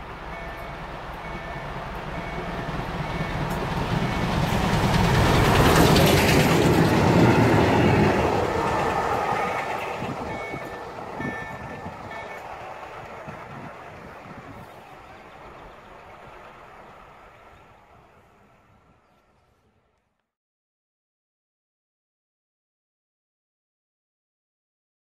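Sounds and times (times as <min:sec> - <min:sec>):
carriages rumbling and clattering: 0:00.0 - 0:19.4
steam train passing: 0:00.0 - 0:19.5.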